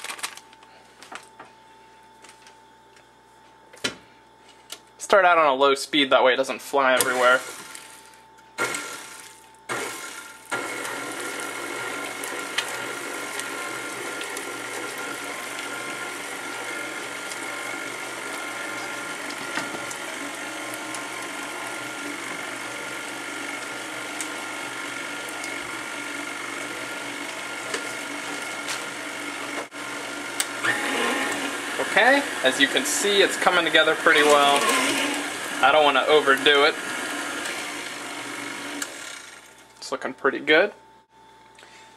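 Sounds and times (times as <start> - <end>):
stand mixer whirring: 7.0 - 7.9, 8.6 - 39.7.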